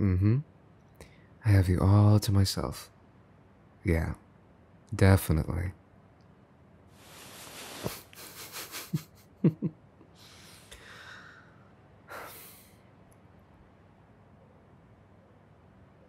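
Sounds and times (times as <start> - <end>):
man breathing close to microphone: 10.2 - 12.8
sharp breath huffs: 10.2 - 12.8.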